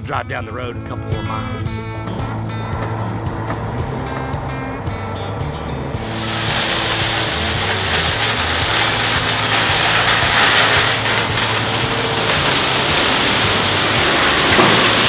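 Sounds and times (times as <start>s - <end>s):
truck engine running: 0.3s - 15.0s
gravel pouring from truck bed: 3.5s - 15.0s.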